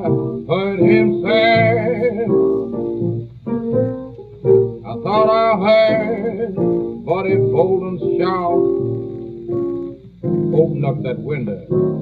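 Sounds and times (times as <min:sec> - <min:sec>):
man singing in a wavering voice: 0:00.0 - 0:02.4, 0:04.9 - 0:08.6
blues piano: 0:00.0 - 0:12.0.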